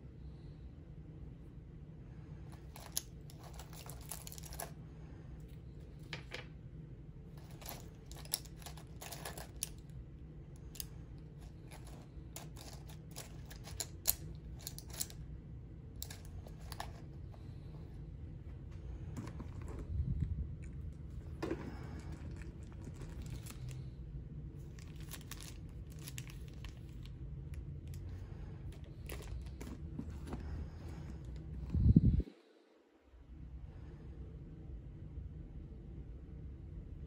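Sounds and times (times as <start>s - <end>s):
low steady hum: 0.0s - 37.0s
items clicking in a pouch: 11.5s - 15.2s.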